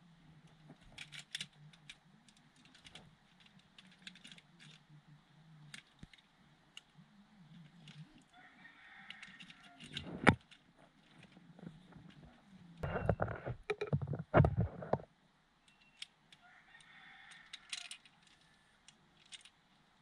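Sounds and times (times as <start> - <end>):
faint low hum: 0.0 - 20.0
plastic parts clicking: 0.4 - 4.9, 5.6 - 6.9, 7.5 - 8.3, 9.1 - 15.0, 15.6 - 19.6.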